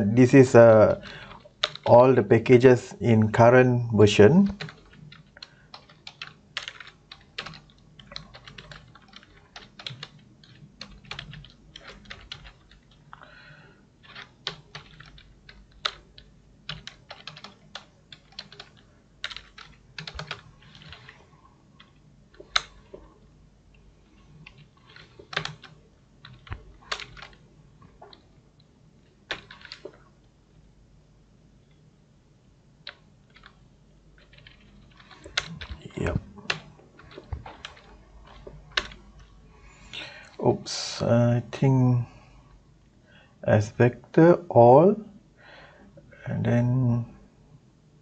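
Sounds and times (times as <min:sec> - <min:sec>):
typing on computer keyboard: 0:01.0 - 0:01.9, 0:04.5 - 0:13.4, 0:14.0 - 0:23.1, 0:24.4 - 0:27.4, 0:29.3 - 0:30.0, 0:32.8 - 0:33.6, 0:34.2 - 0:39.3.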